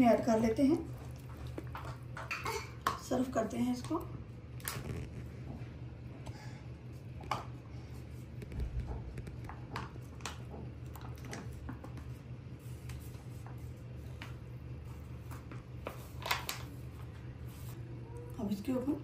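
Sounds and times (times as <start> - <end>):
custard wet squishes: 0.0 - 5.2
steady low hum: 0.0 - 19.0.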